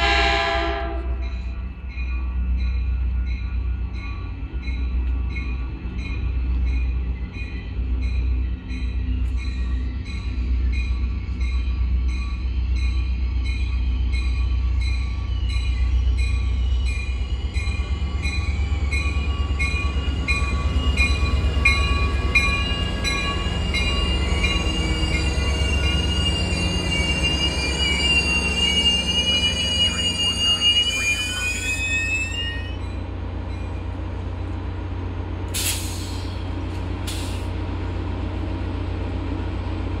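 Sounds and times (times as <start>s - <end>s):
train wheels and brakes squealing: 1.1s - 34.0s, 35.6s - 37.6s
air hisses: 35.6s - 37.5s.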